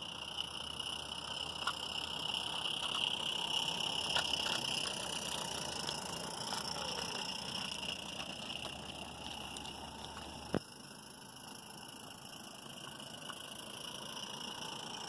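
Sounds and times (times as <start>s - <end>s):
steam locomotive exhaust: 0.0s - 15.0s
wheels clicking on rails: 0.0s - 15.0s.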